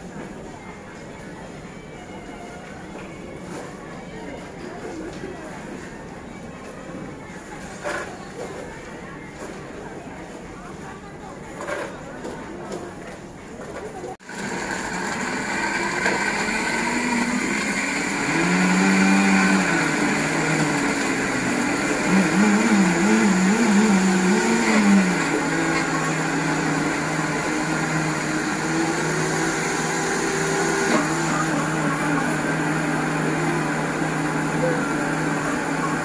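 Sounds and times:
blender running: 14.2s - 36.0s.

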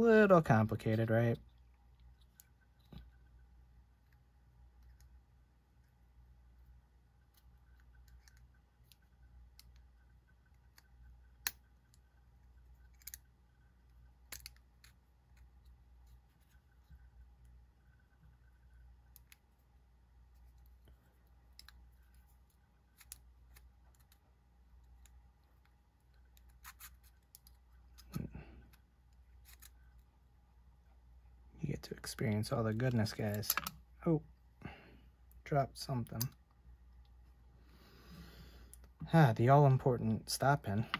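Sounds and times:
metal knife parts clicking: 12.8s - 13.3s.

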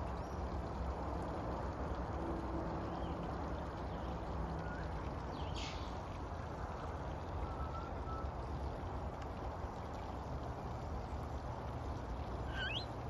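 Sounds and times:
low outdoor rumble: 0.0s - 13.0s
faint thin chirps: 12.5s - 12.9s
short high-pitched call: 12.5s - 12.9s.

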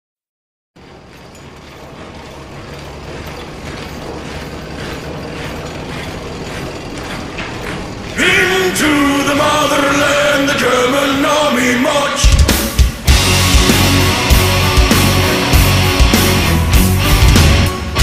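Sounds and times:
tank tracks clanking: 0.8s - 11.6s
engine rumble: 0.8s - 11.7s
heavy metal music: 1.9s - 18.0s.

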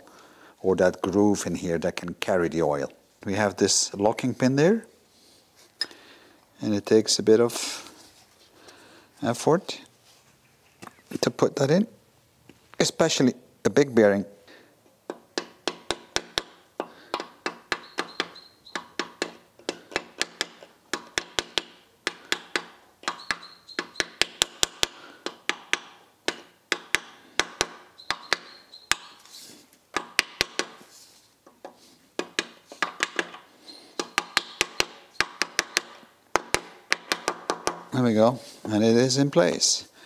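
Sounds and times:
rubber mallet tapping metal: 15.1s - 29.2s, 29.9s - 30.8s, 34.0s - 37.9s.

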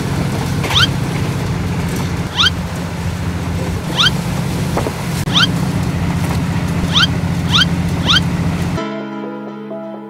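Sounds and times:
train running drone: 0.0s - 8.8s
short rising chirp: 0.7s - 1.0s, 2.3s - 2.6s, 3.9s - 4.2s, 5.3s - 5.6s, 6.8s - 8.3s.

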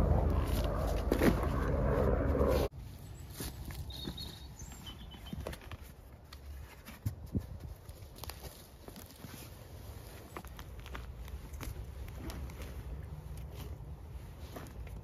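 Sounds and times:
wind rumble on microphone: 0.0s - 2.7s
footsteps on dry leaves: 0.0s - 5.4s
camping gear rustling and knocking: 2.7s - 15.0s
faint bird chirp: 3.1s - 5.5s.

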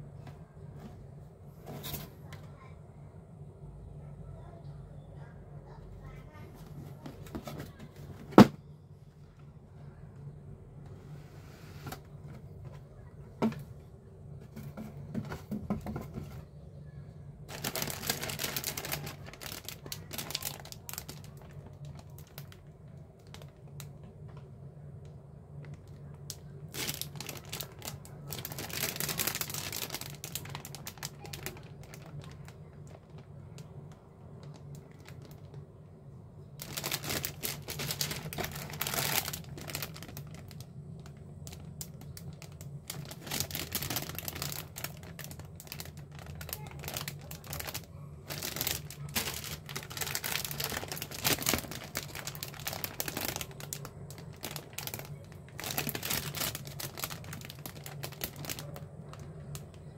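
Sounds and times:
plastic bags crinkling: 17.4s - 24.5s, 25.5s - 35.7s, 36.5s - 59.9s.

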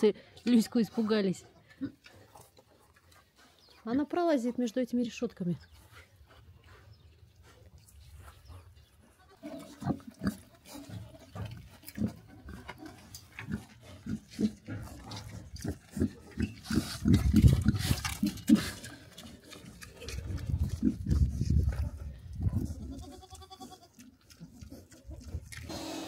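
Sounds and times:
pigs grunting: 9.1s - 26.0s.

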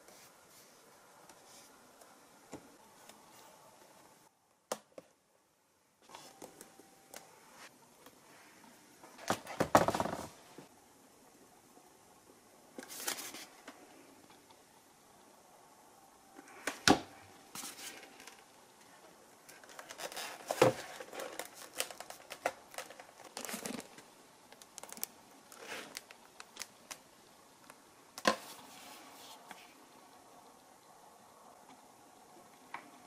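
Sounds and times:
foam crinkling and rustling: 19.5s - 27.0s.

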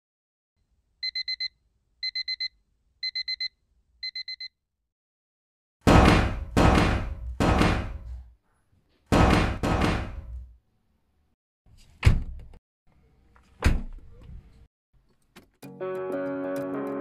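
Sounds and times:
heavy slamming bangs: 5.8s - 8.2s, 9.1s - 10.5s
sharp knocks: 5.9s - 8.2s, 9.1s - 10.4s.

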